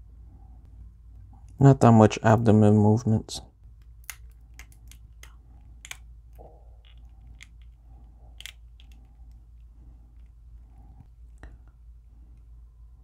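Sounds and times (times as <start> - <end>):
low steady hum: 0.0 - 13.0
plastic figure joints clicking: 8.4 - 9.2.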